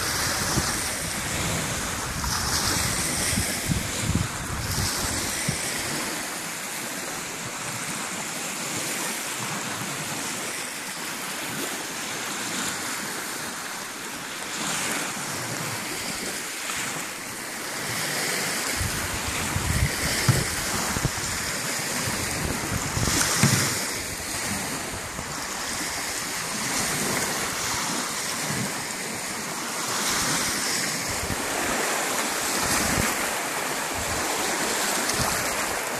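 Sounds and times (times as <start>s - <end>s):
wind rumbling on microphone: 0.0s - 6.3s, 17.8s - 35.9s
small waves breaking on sand: 0.0s - 35.9s.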